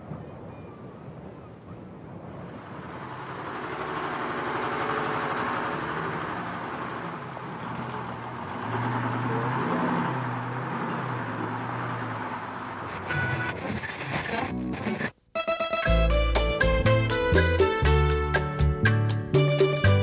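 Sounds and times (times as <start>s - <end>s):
traffic noise: 0.0s - 14.6s
bus engine running: 2.2s - 14.0s.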